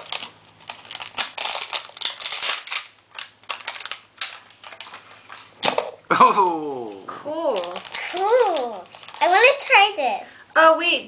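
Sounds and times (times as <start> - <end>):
tape crackling and tearing: 0.0 - 5.8, 6.9 - 9.7.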